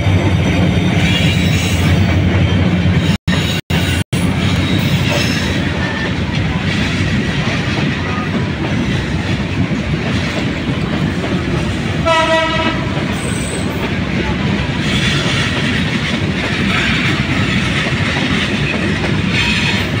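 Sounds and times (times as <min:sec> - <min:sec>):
train wheels on rails: 0:00.0 - 0:20.0
train horn blast: 0:12.0 - 0:13.0.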